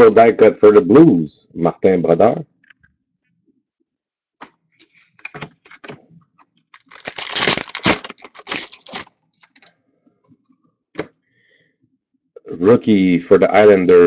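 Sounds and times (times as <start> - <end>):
scraping crinkling noise: 4.8 - 10.6
card packs clicking and snapping: 6.7 - 9.7.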